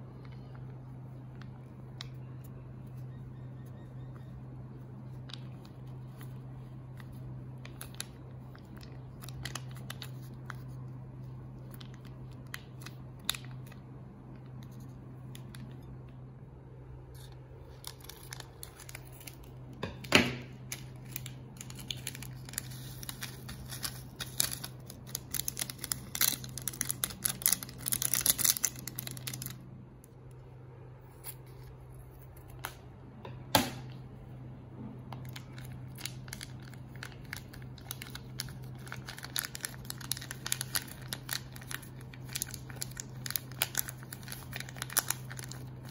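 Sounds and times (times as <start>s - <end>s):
steady low hum: 0.0s - 45.9s
plastic packets crinkling and tearing: 5.0s - 15.7s, 17.3s - 19.8s, 20.5s - 29.7s, 35.2s - 45.9s.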